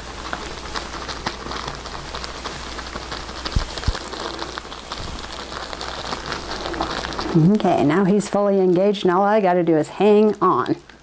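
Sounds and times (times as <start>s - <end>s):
rustling and scuffling of fur: 0.0s - 7.7s.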